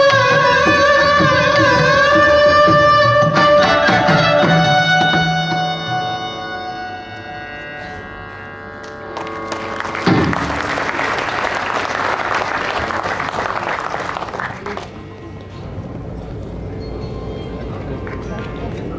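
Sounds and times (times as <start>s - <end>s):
violins holding notes: 0.0s - 18.9s
audience applause: 9.2s - 15.0s.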